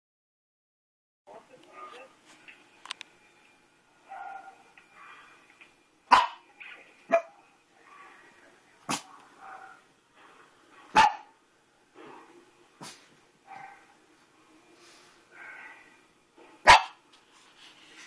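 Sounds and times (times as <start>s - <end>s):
small dog barking: 4.1s - 4.6s, 6.1s - 6.4s, 7.1s - 7.4s, 10.9s - 11.3s, 13.5s - 13.9s, 16.6s - 17.0s.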